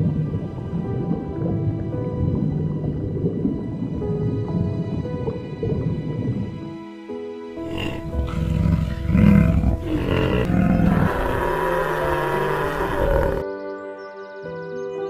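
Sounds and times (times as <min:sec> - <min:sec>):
background music: 0:00.0 - 0:15.0
large animal rough low calls: 0:07.6 - 0:13.4.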